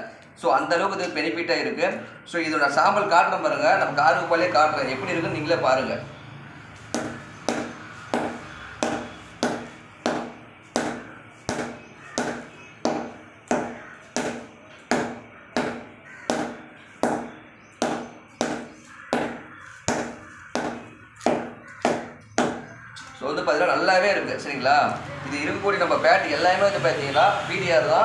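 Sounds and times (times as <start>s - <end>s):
ball bouncing on cricket bat: 6.8s - 22.8s.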